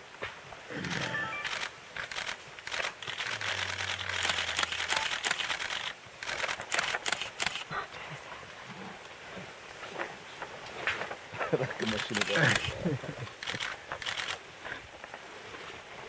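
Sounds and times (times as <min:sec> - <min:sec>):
leaves and twigs rustling: 0:00.0 - 0:16.0
sharp clicks: 0:00.9 - 0:07.7, 0:11.8 - 0:12.8, 0:13.4 - 0:14.4.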